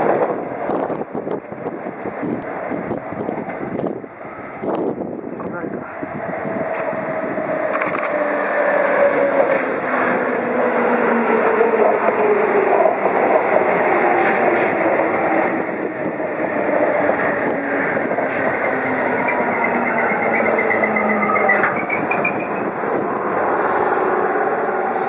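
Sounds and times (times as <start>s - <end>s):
train motor and brake whine: 6.4s - 25.0s.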